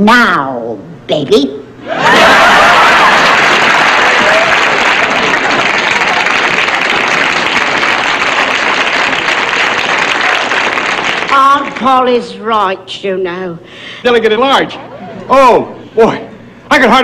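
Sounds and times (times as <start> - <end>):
audience applauding: 2.0 - 11.9.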